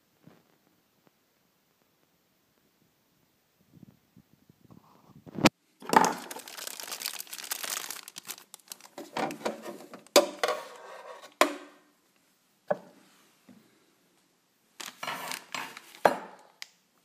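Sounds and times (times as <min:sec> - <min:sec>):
plastic bag crinkling: 0:05.8 - 0:10.2, 0:14.8 - 0:16.7.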